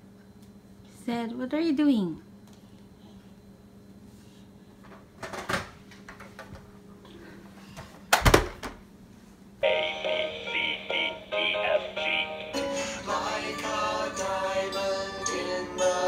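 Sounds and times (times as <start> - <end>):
electronic toy tune: 9.6 - 12.8.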